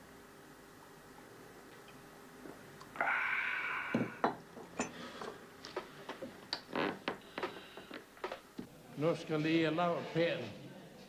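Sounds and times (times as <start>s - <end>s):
loud breathy exhale: 3.0s - 4.2s
cups clinking on saucers: 3.9s - 5.3s.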